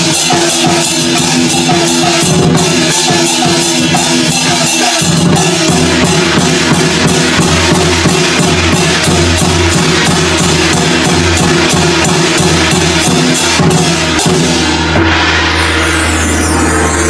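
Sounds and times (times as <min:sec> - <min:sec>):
steady drum beat: 0:00.0 - 0:15.8
sharp cymbal strokes: 0:00.0 - 0:17.0
sustained low tones: 0:13.9 - 0:17.0.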